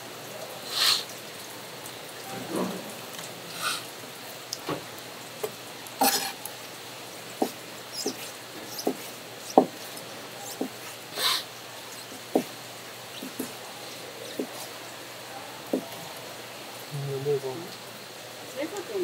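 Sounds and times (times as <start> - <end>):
wet splashy squelches: 7.2 - 15.0
taps and knocks: 8.8 - 9.8, 12.1 - 12.5, 13.2 - 13.6, 14.4 - 14.6.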